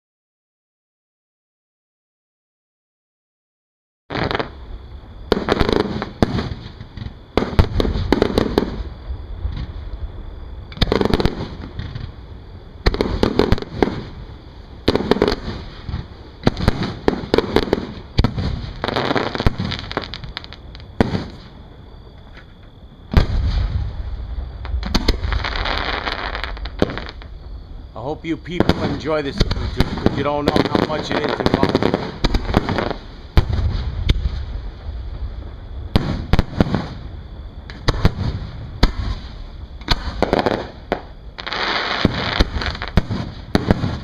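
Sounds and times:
firework shells bursting: 12.8 - 21.6, 24.6 - 27.5, 28.4 - 34.6, 35.9 - 37.0, 37.7 - 44.0.

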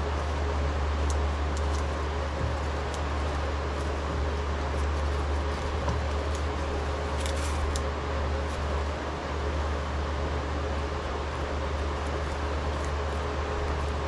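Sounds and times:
steady low hum: 0.0 - 14.0
tape peeling and ripping: 1.0 - 8.8, 11.8 - 14.0.

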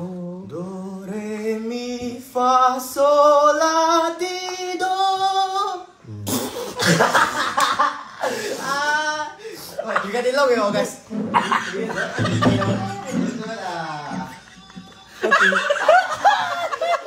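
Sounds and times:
man singing vocal scale: 0.0 - 6.4.

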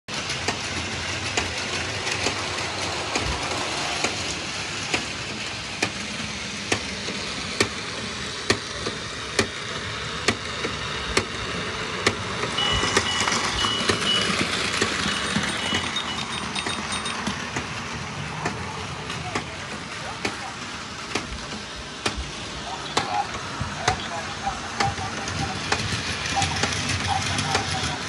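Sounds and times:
sharp click of toy train: 0.4 - 1.5, 8.4 - 11.4.

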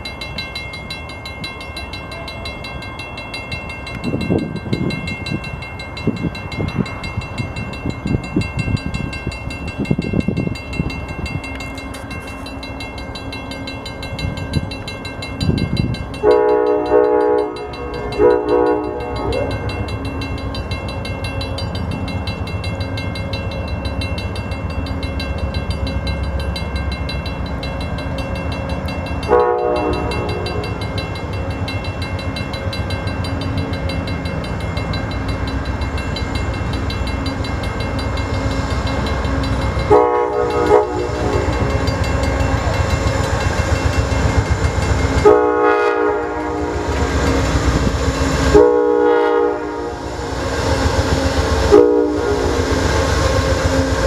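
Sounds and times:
locomotive engine rumble: 8.9 - 54.0
train air horn blasts: 16.2 - 19.5, 29.3 - 30.8, 39.9 - 41.7, 45.2 - 47.6, 48.4 - 53.0
train thumps and clatter: 29.9 - 45.6.

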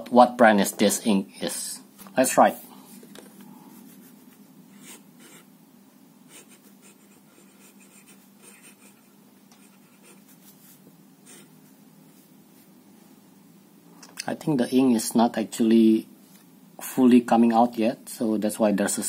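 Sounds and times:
fountain pen scratching on paper: 6.3 - 9.0, 9.6 - 11.5.

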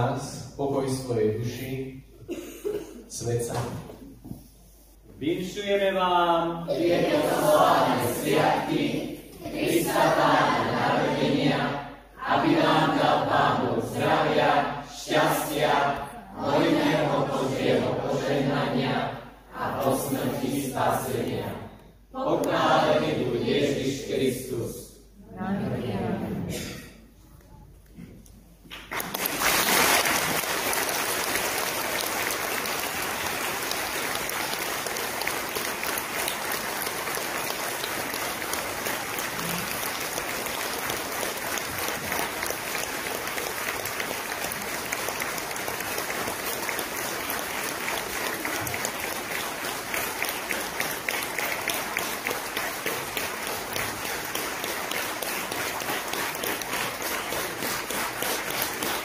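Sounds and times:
audience applauding: 28.6 - 59.0.

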